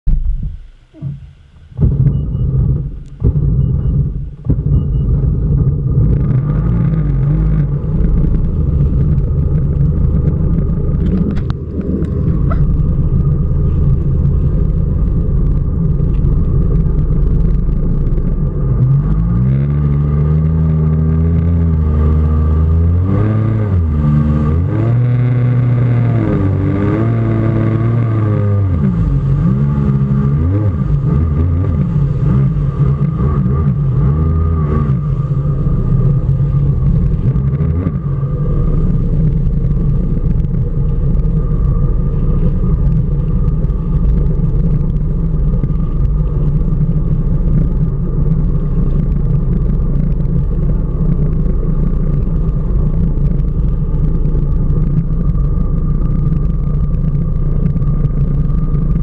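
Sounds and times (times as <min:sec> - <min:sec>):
jet ski engine revving: 0:00.9 - 0:48.8
water rushing and splashing: 0:27.7 - 0:55.6.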